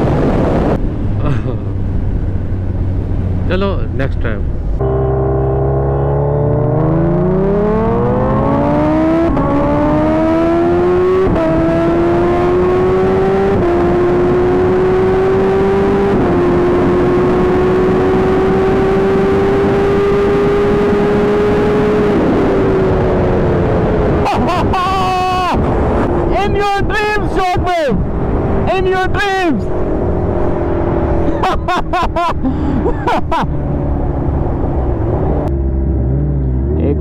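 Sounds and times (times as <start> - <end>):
motorcycle engine at full throttle: 0.0 - 26.3.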